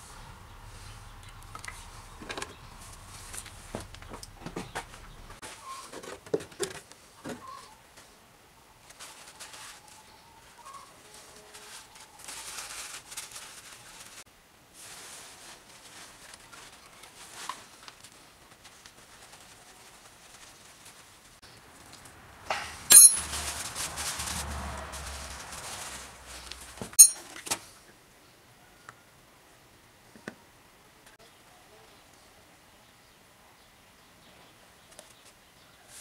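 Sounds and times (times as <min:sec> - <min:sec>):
sharp metallic clink: 0:22.5 - 0:23.4, 0:27.0 - 0:27.3
metal tools rustling and scraping: 0:22.8 - 0:24.4, 0:25.4 - 0:27.4.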